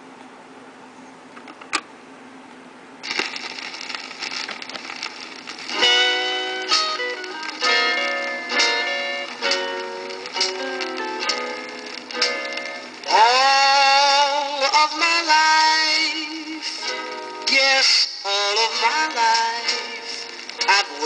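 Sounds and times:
vinyl surface hiss: 0.0s - 21.0s
turntable click: 3.0s - 13.1s
guitar notes: 3.1s - 15.0s.

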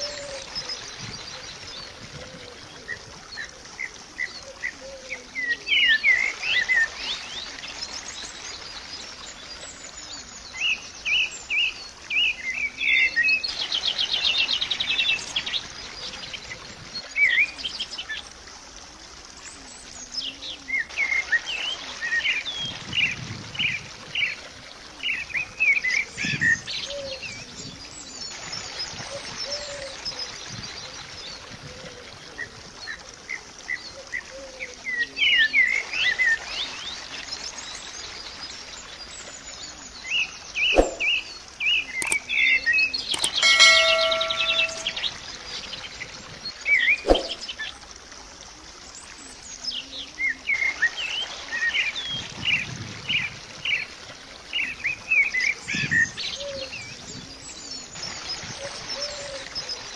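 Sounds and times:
faint outdoor hiss: 0.0s - 59.9s
small birds chirping: 38.6s - 45.2s, 46.5s - 47.7s
sharp clicks: 42.0s - 42.3s, 43.1s - 43.4s.

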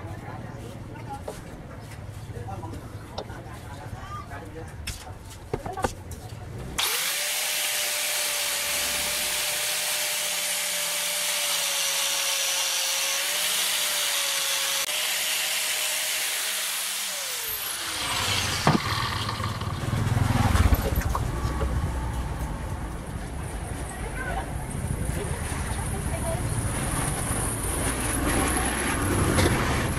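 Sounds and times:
angle grinder on steel: 6.8s - 20.2s.

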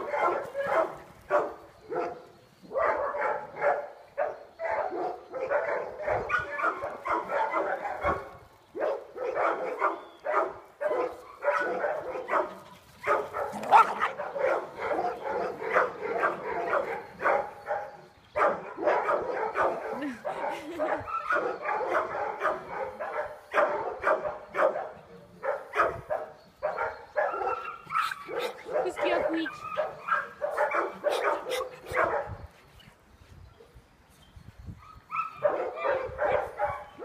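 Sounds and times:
dog barking rapidly: 2.8s - 8.2s, 8.8s - 17.8s, 21.2s - 32.4s, 35.2s - 37.0s
dog yelping: 13.0s - 15.5s, 26.6s - 28.8s, 29.5s - 32.2s.

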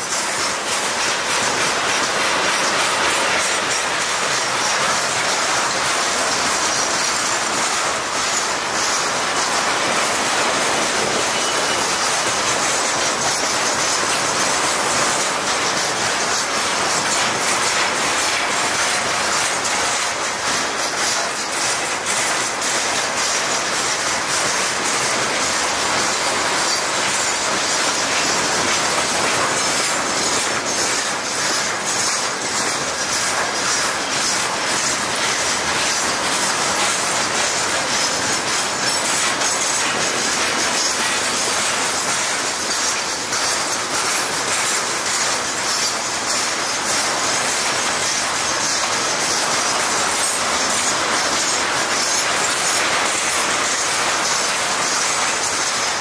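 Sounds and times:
freight train wheels rumbling: 0.0s - 14.6s.

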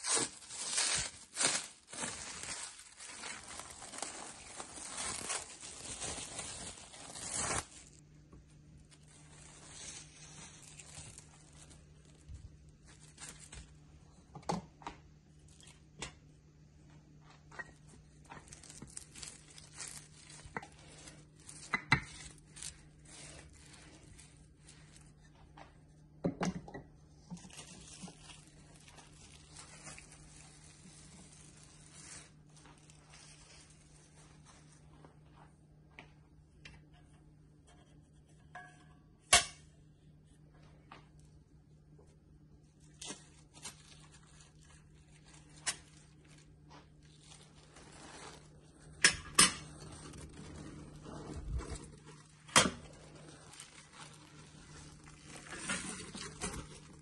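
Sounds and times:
cling film crinkling: 0.0s - 8.0s, 8.8s - 13.9s, 17.8s - 25.7s, 27.3s - 34.7s, 42.7s - 57.0s.

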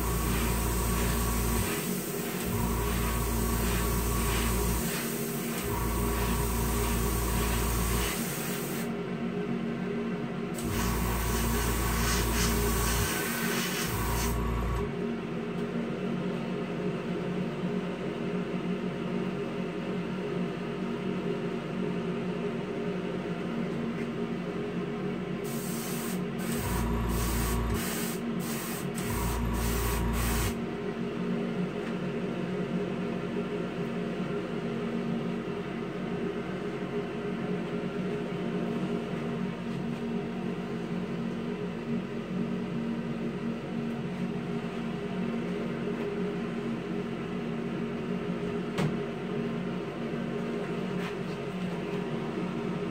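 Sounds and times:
airbrush spraying hiss: 0.0s - 5.6s, 6.2s - 8.9s, 10.6s - 14.4s, 25.5s - 30.6s
compressor and fan hum: 0.0s - 52.9s.

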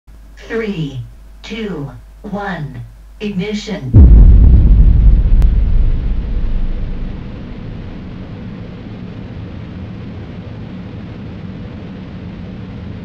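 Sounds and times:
rocket launch rumble: 3.9s - 13.0s.

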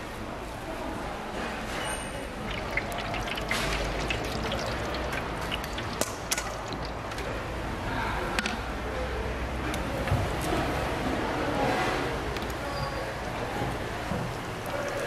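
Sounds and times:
small crackles and drips: 2.3s - 7.4s, 13.2s - 15.0s
hot oil frying: 2.4s - 7.4s, 14.1s - 15.0s.

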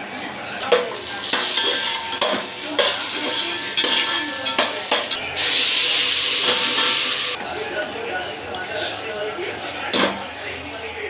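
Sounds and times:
loud steady sizzle: 0.4s - 7.4s
nuts frying in oil: 0.6s - 7.4s
ladle scraping and clicking on pot: 0.7s - 5.5s, 6.4s - 7.3s.

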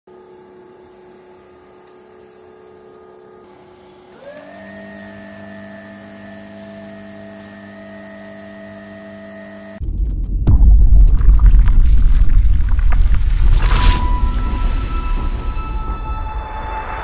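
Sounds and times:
electric motor whine: 0.1s - 9.8s.

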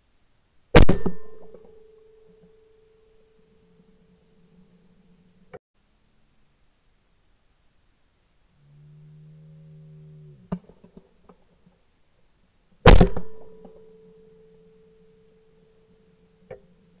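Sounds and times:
loud shotgun shot: 0.8s - 1.8s, 12.9s - 13.8s
faint ringing tone: 1.2s - 5.6s, 13.3s - 17.0s.

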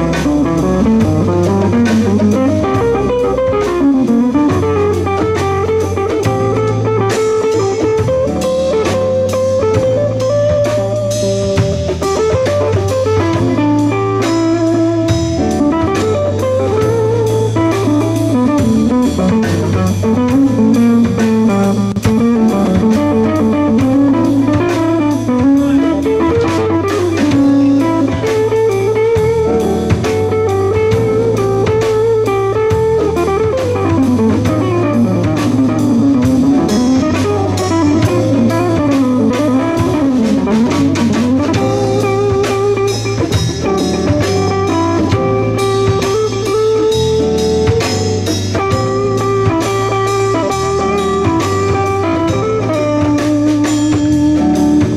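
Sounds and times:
drum kit steady beat: 0.0s - 54.9s
electric guitar melody: 0.0s - 54.9s
keyboard: 0.0s - 54.9s
second electric guitar: 0.0s - 54.9s.

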